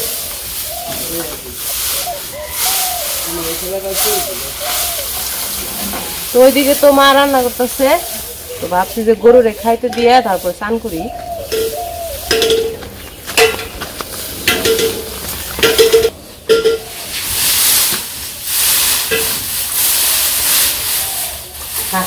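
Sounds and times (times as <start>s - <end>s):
dry straw rustling and crackling: 0.0s - 22.0s.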